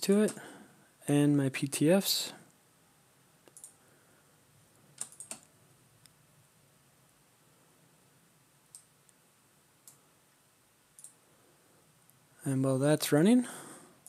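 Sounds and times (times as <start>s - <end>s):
computer mouse clicks: 3.4s - 3.8s, 4.9s - 6.2s, 8.7s - 8.9s, 9.8s - 10.0s, 11.0s - 11.2s.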